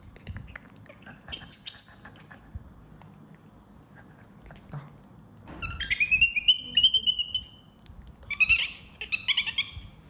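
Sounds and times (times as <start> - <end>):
baby monkey squealing: 5.6 - 7.6, 8.3 - 9.9.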